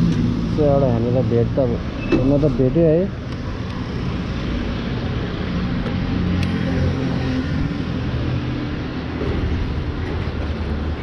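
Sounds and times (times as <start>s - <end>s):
road traffic rumble: 0.0s - 11.0s.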